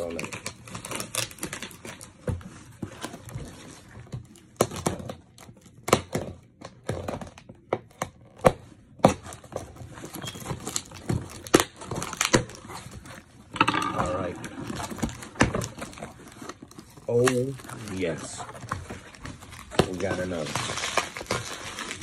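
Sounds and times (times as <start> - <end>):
packing tape peeling off cardboard: 0.0 - 2.1, 14.7 - 22.0
cardboard scratched and tapped: 14.8 - 22.0.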